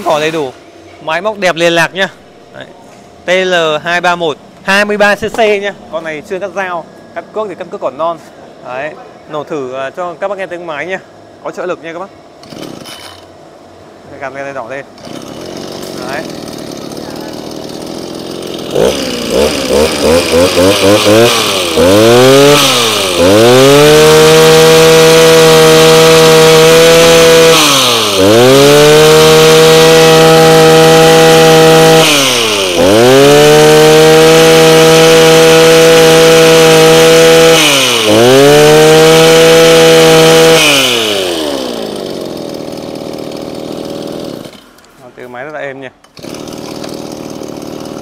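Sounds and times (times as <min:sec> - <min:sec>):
brush cutter engine revving: 0:12.4 - 0:13.3, 0:14.9 - 0:44.8, 0:46.0 - 0:48.0.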